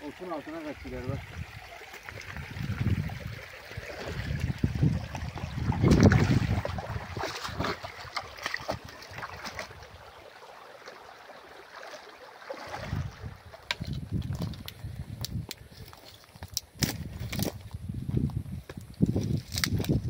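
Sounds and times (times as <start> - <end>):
creek water running: 0.0 - 17.5
wind buffeting microphone: 1.0 - 9.9, 12.7 - 15.8, 16.7 - 20.0.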